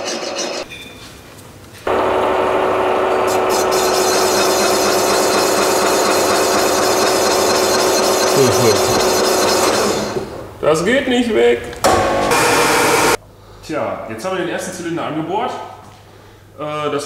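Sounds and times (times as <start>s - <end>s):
boring machine cutting metal: 1.9s - 10.3s.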